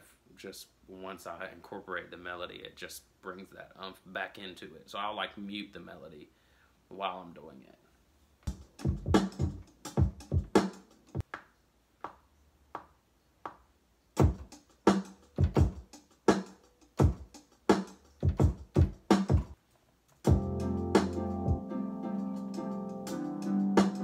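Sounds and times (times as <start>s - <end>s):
electronic drum machine hits: 20.3s - 21.7s.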